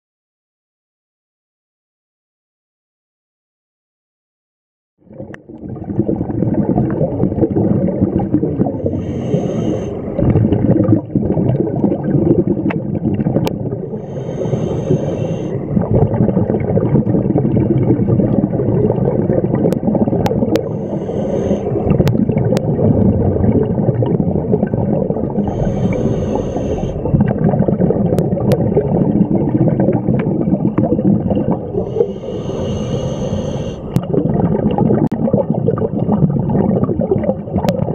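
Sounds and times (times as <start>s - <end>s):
muffled underwater rumble and bubbles: 5.0s - 37.9s
regulator hiss: 25.4s - 26.9s, 32.0s - 33.8s.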